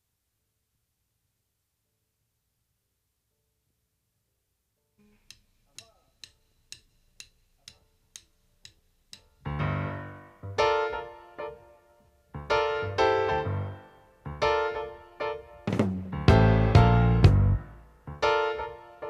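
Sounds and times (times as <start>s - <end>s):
count-in clicks: 5.0s - 9.5s
piano chord stabs: 12.4s - 19.0s
deep bass notes: 15.7s - 18.2s.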